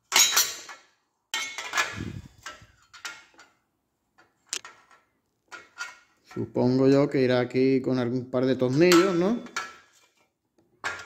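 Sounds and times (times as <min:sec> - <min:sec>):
metal parts clinking and knocking: 0:00.0 - 0:03.6.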